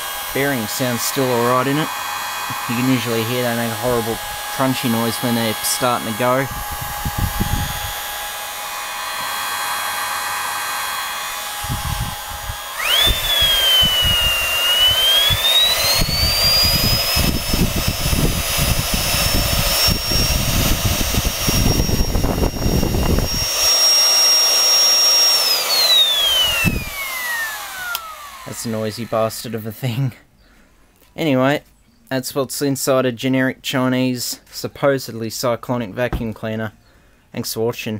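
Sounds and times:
vacuum cleaner motor whining: 0.0s - 29.6s
rushing air: 2.5s - 9.6s, 11.2s - 23.8s, 25.7s - 29.2s.

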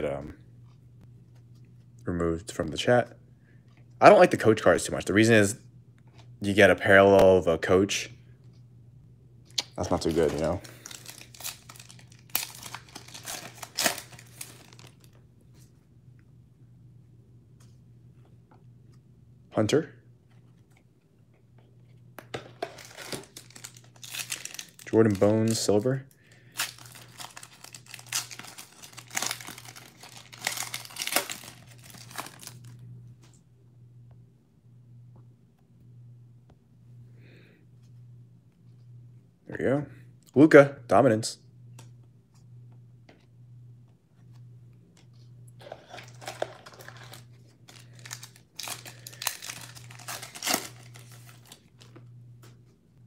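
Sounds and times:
faint low hum: 0.0s - 53.0s
foil wrapper crinkling and tearing: 9.6s - 15.2s, 22.7s - 32.8s, 45.6s - 52.0s.

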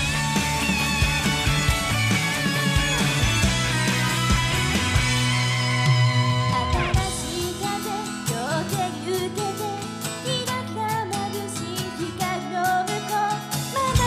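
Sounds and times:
backing music with guitar: 0.0s - 14.0s
women singing into microphones: 7.0s - 14.0s.

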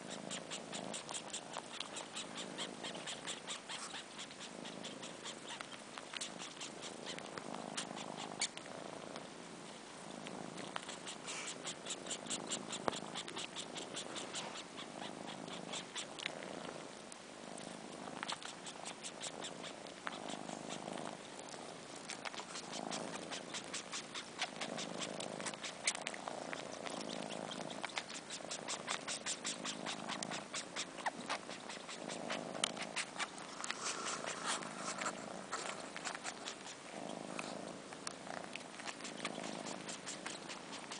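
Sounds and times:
kittens purring: 0.0s - 40.9s
wet sucking clicks: 18.2s - 40.9s.

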